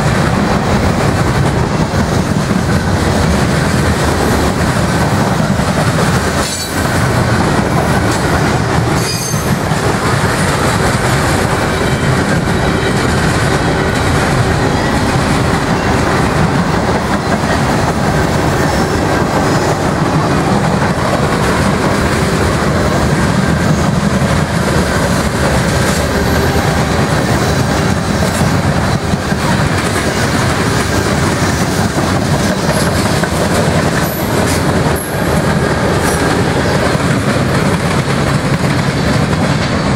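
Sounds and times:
freight train wheels rumbling on rail: 0:00.0 - 0:39.9
wheel clickety-clack over rail joints: 0:00.0 - 0:39.9
train wheel squeal: 0:06.4 - 0:07.0, 0:08.9 - 0:17.8, 0:33.9 - 0:35.4.

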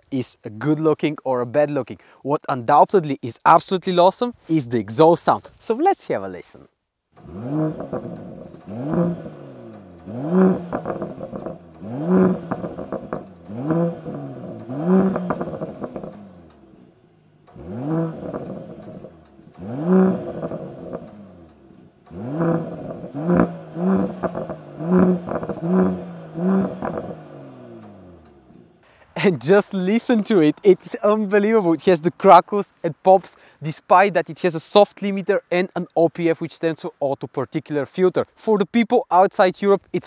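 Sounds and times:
exhaust crackles and pops: 0:07.1 - 0:40.0
car engine revving: 0:07.2 - 0:28.8.

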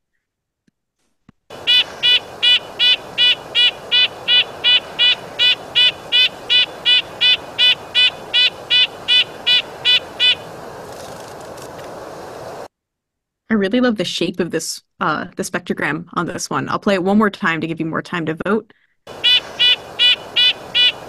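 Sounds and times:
bird nasal calls: 0:01.5 - 0:10.5, 0:19.1 - 0:21.0
background hiss: 0:01.5 - 0:12.7, 0:19.1 - 0:21.0.

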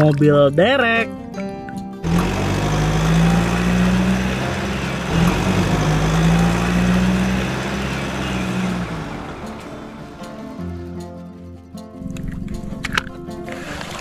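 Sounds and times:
truck engine running: 0:02.0 - 0:10.9.

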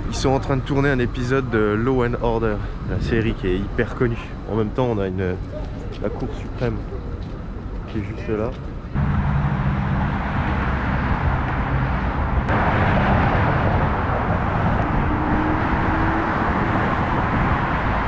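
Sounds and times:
city street traffic: 0:00.0 - 0:18.0
vehicle engine humming low: 0:00.0 - 0:18.0.

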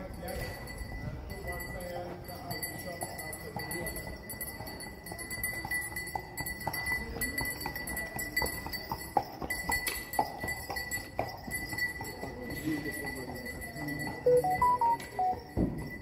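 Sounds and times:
hooves clip-clopping on stone: 0:00.4 - 0:14.2
faint high-pitched tone: 0:14.3 - 0:15.7.

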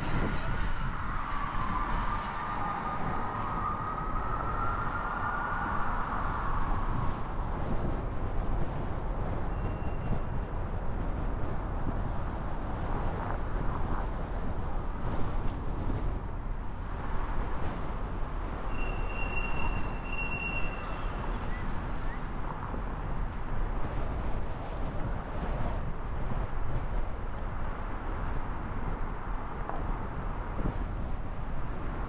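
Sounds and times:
car road noise: 0:00.0 - 0:32.0
thin high whistling tone: 0:18.7 - 0:21.6.

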